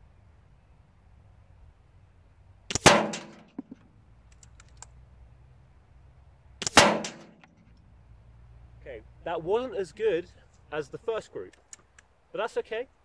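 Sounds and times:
air rifle shots: 2.7s - 3.8s, 6.6s - 7.5s
faint clicks: 3.5s - 5.0s, 11.5s - 12.1s.

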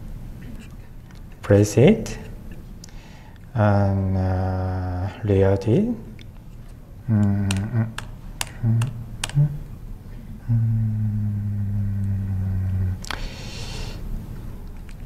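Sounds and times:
man humming low: 3.6s - 5.3s, 7.0s - 13.2s
laptop keyboard keystrokes: 7.5s - 9.4s.

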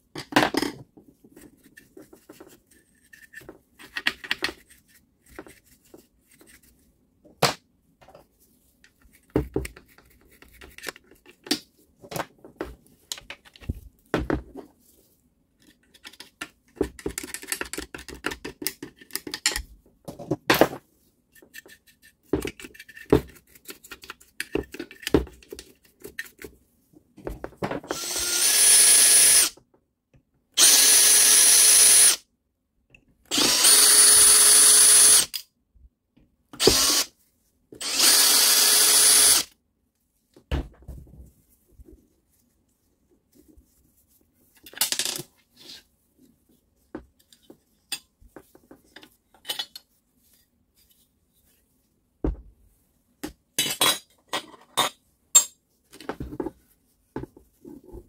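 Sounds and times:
cordless drill running: 27.9s - 29.5s, 30.6s - 32.2s, 33.3s - 35.3s, 36.6s - 37.1s, 37.8s - 39.5s.

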